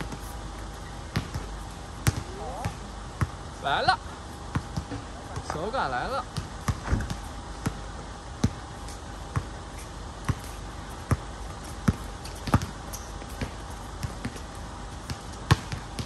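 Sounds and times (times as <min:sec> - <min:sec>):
basketball bouncing on hard court: 0:01.1 - 0:03.4, 0:04.5 - 0:05.7, 0:06.3 - 0:07.8, 0:08.4 - 0:08.7, 0:10.2 - 0:14.4, 0:15.0 - 0:16.0.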